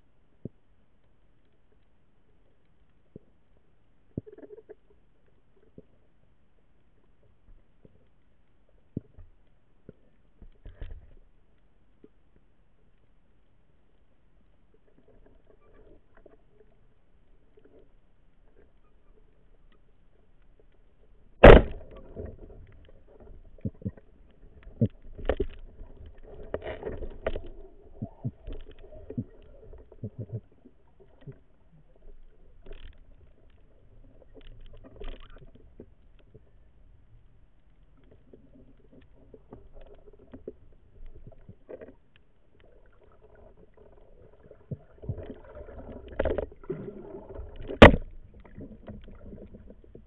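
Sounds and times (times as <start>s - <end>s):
speargun firing crack: 21.4s - 21.9s.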